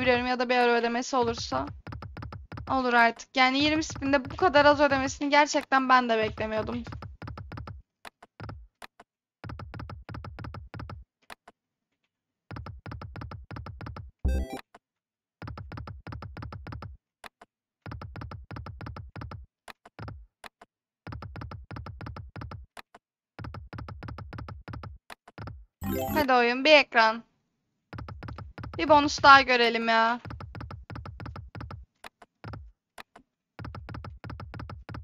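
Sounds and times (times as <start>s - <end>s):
electronic win chime: 14.3s - 14.6s, 25.8s - 26.3s.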